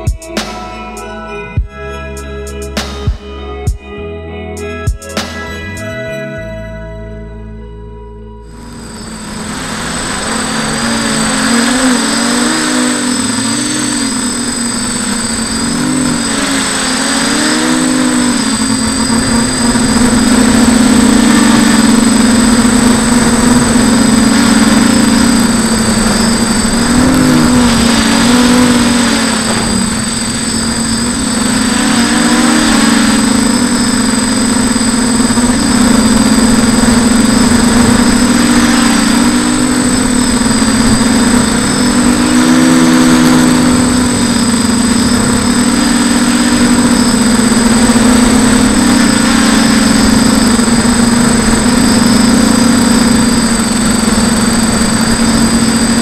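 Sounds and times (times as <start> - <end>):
drone motors buzzing: 8.5 - 56.0.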